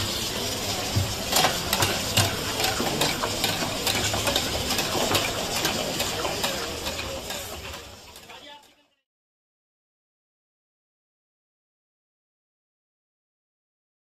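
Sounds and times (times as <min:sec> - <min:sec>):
cooking hiss: 0:00.0 - 0:09.0.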